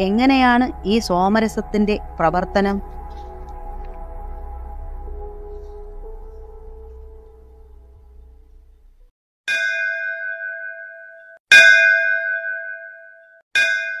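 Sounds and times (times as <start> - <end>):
bell struck: 0.0 - 8.8, 9.5 - 14.0
soft ambient music: 0.0 - 9.1.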